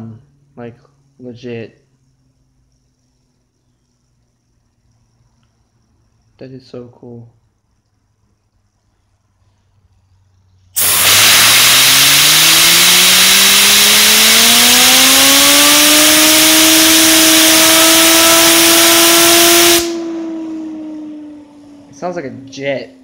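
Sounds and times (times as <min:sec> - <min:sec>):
fidget spinner bearing whine: 0:00.0 - 0:23.0
compressed air hissing: 0:10.7 - 0:20.1.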